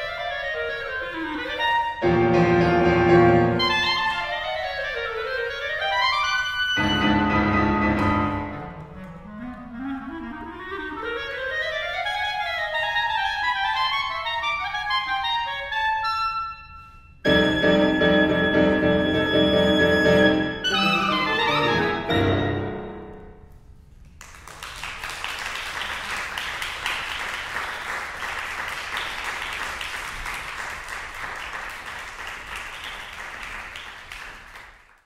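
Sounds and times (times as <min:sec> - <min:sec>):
clarinet: 0:00.0 - 0:23.2
piano: 0:01.1 - 0:09.6, 0:11.1 - 0:23.8
audience applause: 0:24.2 - 0:35.0.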